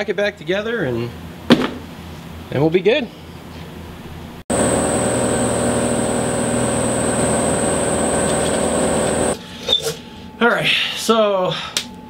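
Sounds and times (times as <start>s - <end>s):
machine whine over low hum: 4.5s - 9.4s.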